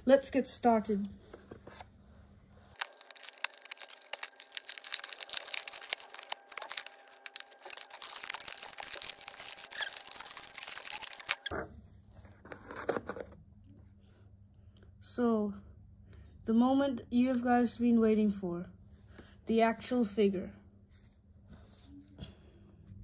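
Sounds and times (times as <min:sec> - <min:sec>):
plastic crinkling and tearing: 0:02.7 - 0:11.5.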